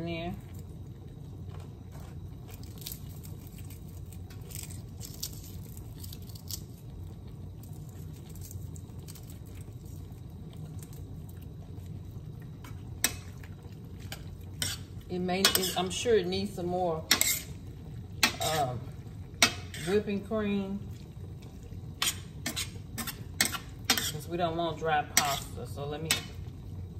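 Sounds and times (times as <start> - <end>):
steady low hum: 0.0 - 26.9
bacon crunching and crackling: 1.5 - 15.8.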